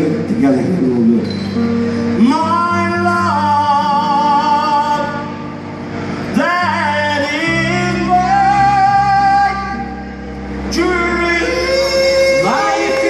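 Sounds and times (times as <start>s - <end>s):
man singing with vibrato: 2.1s - 5.6s, 6.2s - 13.0s.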